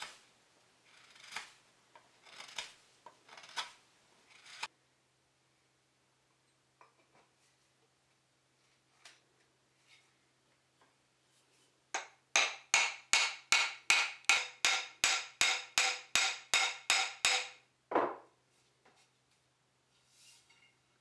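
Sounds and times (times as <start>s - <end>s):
hammer tapping wooden handle: 12.0s - 18.2s.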